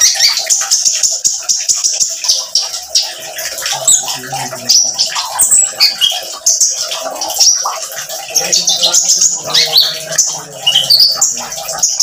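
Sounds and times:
bird chirping and twittering: 0.0 - 12.0
water trickling: 0.0 - 12.0.

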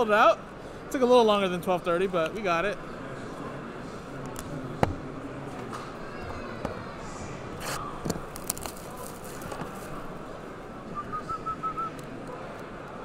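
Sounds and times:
convention hall chatter: 0.0 - 13.0
boxes rustling: 7.6 - 10.1.

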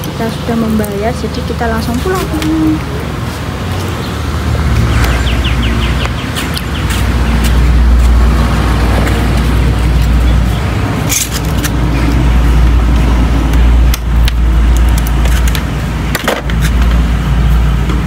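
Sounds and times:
bird chirping: 3.9 - 7.6.

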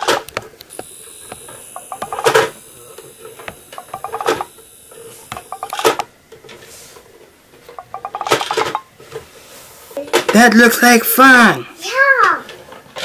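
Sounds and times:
toy truck plastic ratcheting clicks: 0.0 - 6.1.

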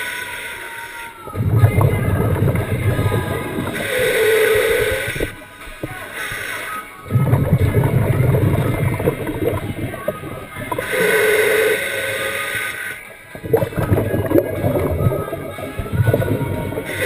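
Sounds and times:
hissing inhale through regulator: 0.0 - 17.0
bubbles rumbling: 1.3 - 6.0, 7.0 - 11.8, 13.3 - 17.0.

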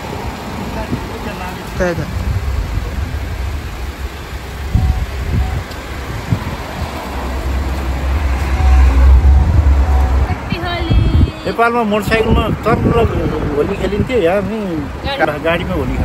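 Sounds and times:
low uneven rumble: 0.0 - 14.4
street noise: 0.0 - 16.0.

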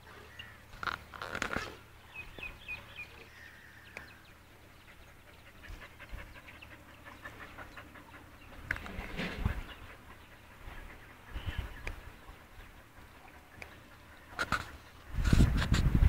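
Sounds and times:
bird chirping: 2.0 - 14.8
dog panting: 4.6 - 15.0.

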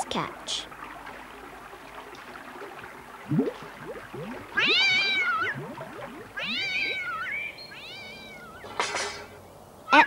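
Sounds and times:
cartoon cat meowing: 6.4 - 8.6.

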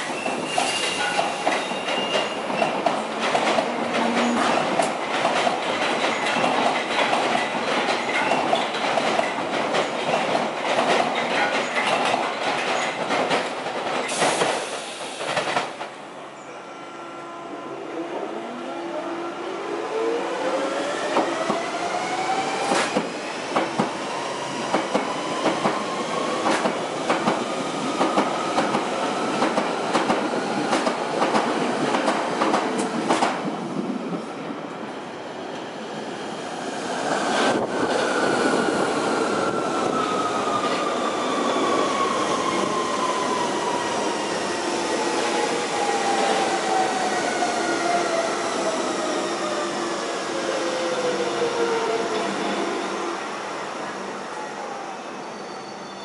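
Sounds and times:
train running noise: 0.0 - 16.1, 20.2 - 34.3.

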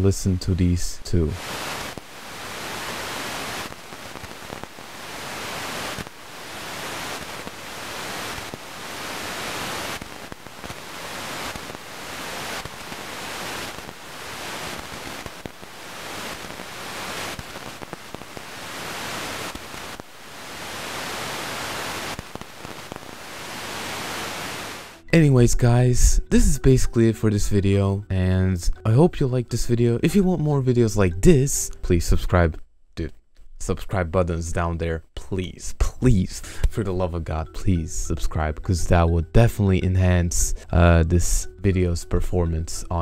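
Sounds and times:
radio static hiss: 0.0 - 27.0, 28.9 - 33.1, 35.2 - 43.0.

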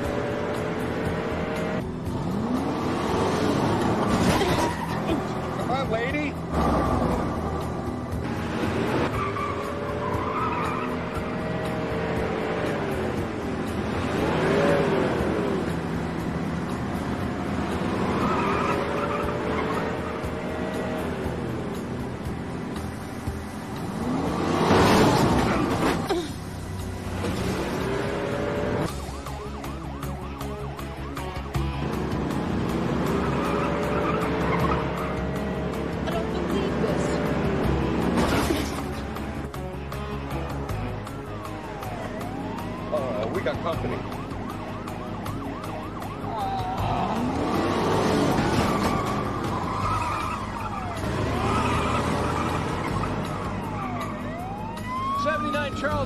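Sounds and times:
car engines revving: 0.0 - 56.0
tyres squealing: 9.1 - 11.4
police siren yelping: 28.8 - 31.7, 41.1 - 56.0.

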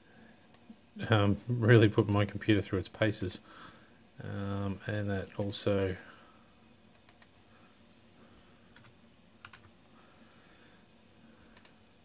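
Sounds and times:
keyboard and mouse clicks: 6.9 - 7.4, 8.7 - 9.8, 11.5 - 11.8.

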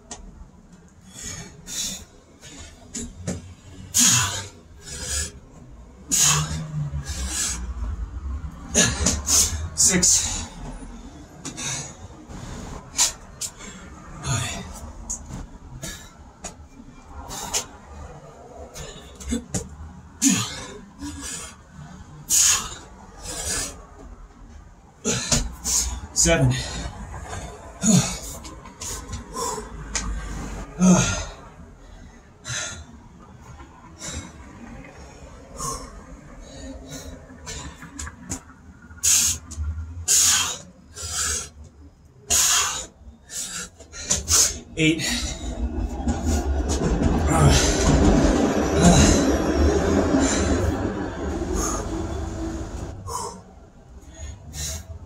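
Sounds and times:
man grunting: 8.7 - 10.5, 14.2 - 14.8, 25.0 - 26.9, 27.8 - 28.4, 30.8 - 31.4, 44.7 - 45.4, 47.2 - 47.8, 48.6 - 49.4
man exhaling forcefully: 50.1 - 53.4.

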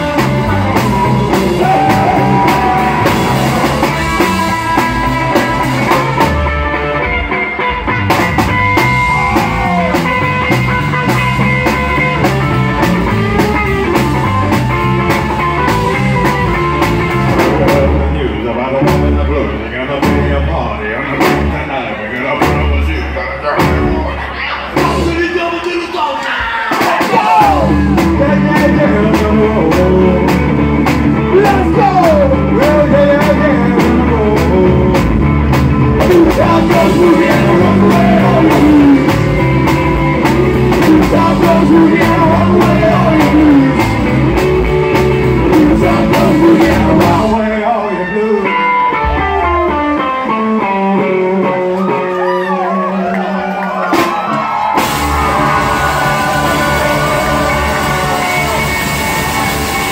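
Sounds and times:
person singing: 0.0 - 6.4, 26.9 - 30.7, 31.3 - 35.1, 36.0 - 39.2, 40.7 - 44.1, 45.1 - 49.8, 55.2 - 59.9
drums beating: 0.0 - 19.4, 20.0 - 21.7, 22.4 - 47.4, 49.0 - 50.8, 53.3 - 59.9
electric guitar: 0.0 - 20.4, 27.0 - 59.9
bass guitar: 0.0 - 59.9.

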